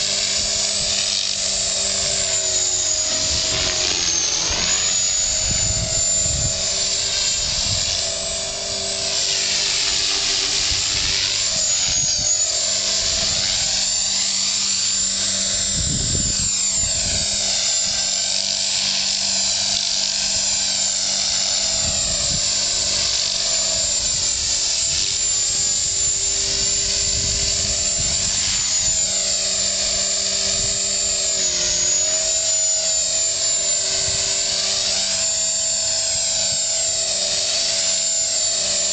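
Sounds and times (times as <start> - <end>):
rc helicopter high-pitched whine: 0.0 - 38.9.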